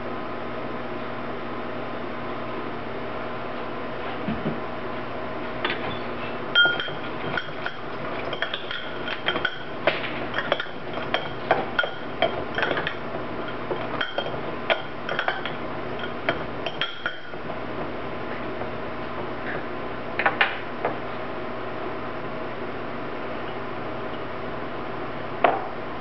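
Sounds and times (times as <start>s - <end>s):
fork clinking against glass bowl: 6.6s - 17.4s.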